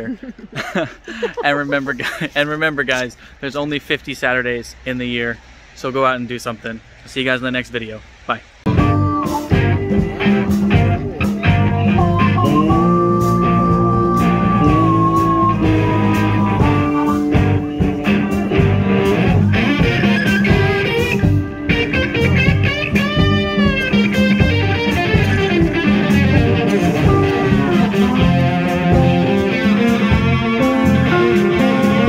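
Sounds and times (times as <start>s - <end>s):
blues-rock band playing: 8.7s - 32.0s
electric guitar lead bending notes: 8.7s - 32.0s.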